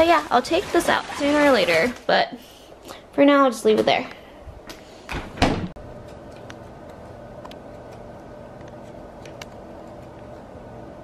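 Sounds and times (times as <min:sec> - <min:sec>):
steady hum: 0:02.3 - 0:11.0.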